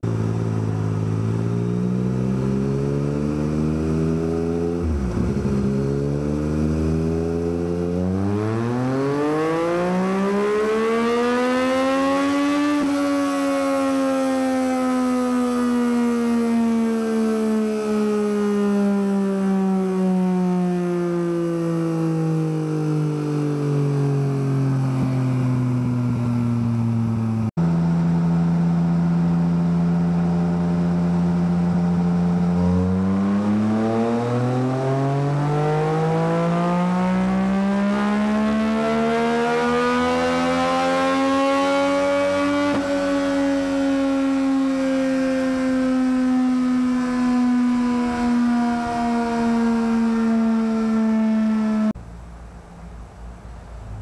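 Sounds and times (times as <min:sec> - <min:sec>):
motorcycle engine revving high: 0:00.0 - 0:52.0.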